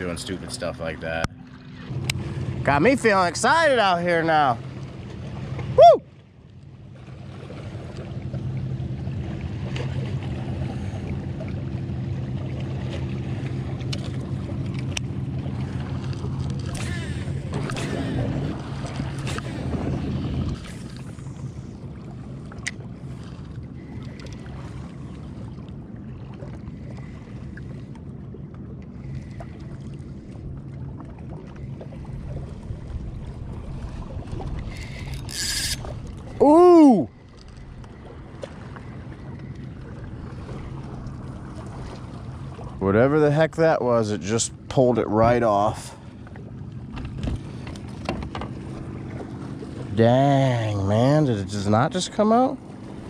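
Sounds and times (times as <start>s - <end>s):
boat motor humming: 0.0s - 53.0s
water against kayak hull: 0.0s - 53.0s
fishing reel clicks: 34.7s - 35.9s.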